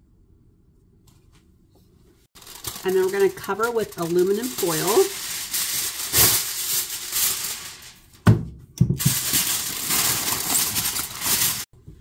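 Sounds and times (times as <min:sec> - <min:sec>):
aluminum foil crinkling: 0:02.4 - 0:08.2, 0:09.0 - 0:11.7.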